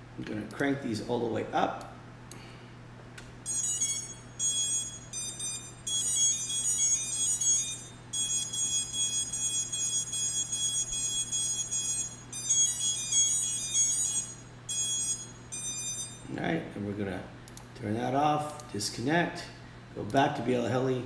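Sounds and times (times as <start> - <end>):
drone motors beeping: 3.5 - 16.3.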